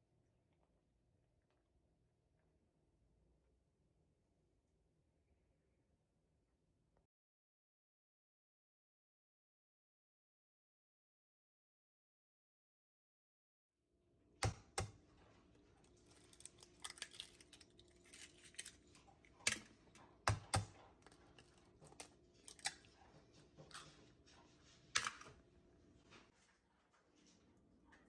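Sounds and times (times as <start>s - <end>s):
eggs knocked on ceramic dish: 20.2s - 20.7s.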